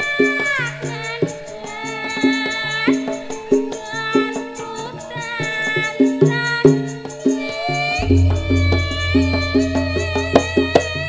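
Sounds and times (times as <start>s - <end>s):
metallophones ringing: 7.8s - 11.0s
high sliding melody: 8.0s - 11.0s
sharp drum strokes: 8.0s - 11.0s.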